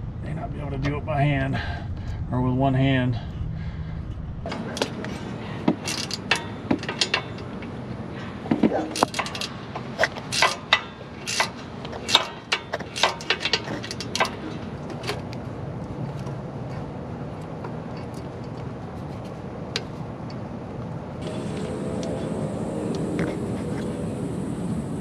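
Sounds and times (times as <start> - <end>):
steady low hum: 0.0 - 25.0
ratchet clicking: 5.8 - 7.5, 8.9 - 14.4.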